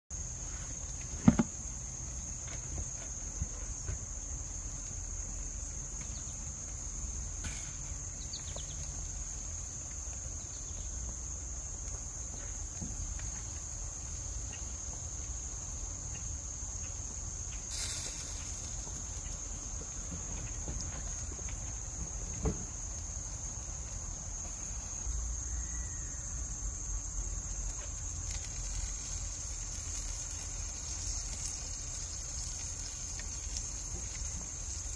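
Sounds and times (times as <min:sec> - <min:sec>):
insects trilling: 0:00.2 - 0:34.9
brief hiss: 0:17.7 - 0:18.9.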